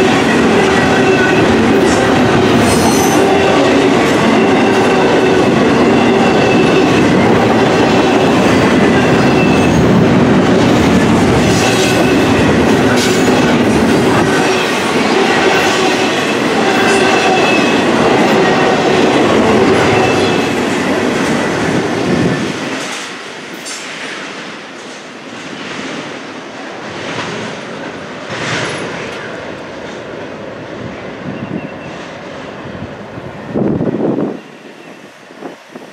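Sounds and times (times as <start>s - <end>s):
high squealing of train wheels: 0.0s - 24.3s, 30.8s - 35.9s
train cars rumbling past: 0.0s - 35.9s.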